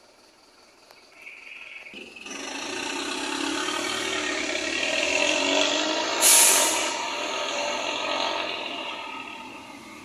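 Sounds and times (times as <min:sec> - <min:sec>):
bus engine pulling away: 0:00.0 - 0:10.0
compressed air hiss: 0:06.1 - 0:07.0.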